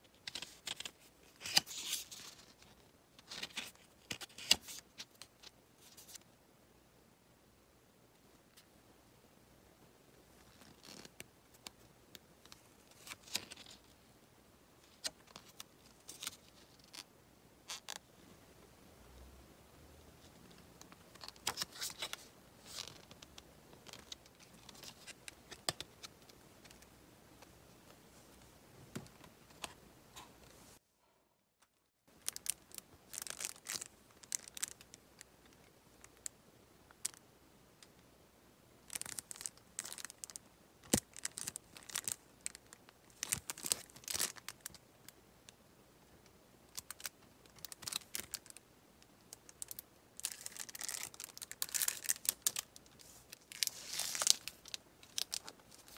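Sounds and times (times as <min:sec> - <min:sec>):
paper rustling and crinkling: 0:00.2 - 0:06.2, 0:50.2 - 0:55.9.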